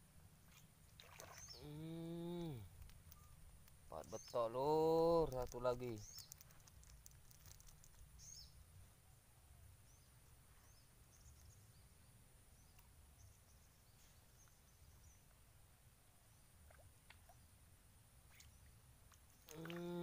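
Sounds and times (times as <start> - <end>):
soft high bird chirps: 1.1 - 6.7, 7.4 - 9.2, 18.2 - 20.0.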